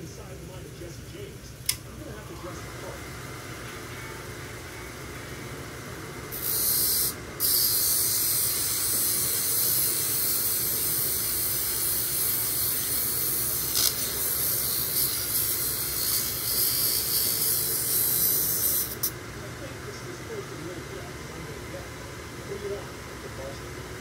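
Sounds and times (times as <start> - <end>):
lap machine motor humming: 0.0 - 24.0
stone grinding hiss: 6.4 - 19.1.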